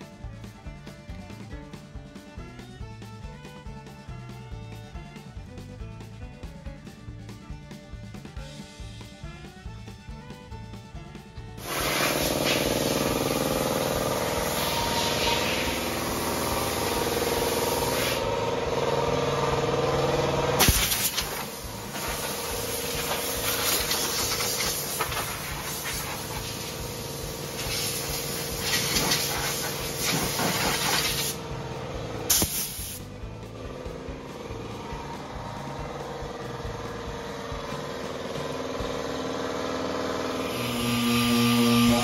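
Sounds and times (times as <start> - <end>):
compressed air hissing: 11.6 - 13.4, 14.3 - 18.3, 20.6 - 31.4, 32.3 - 33.1.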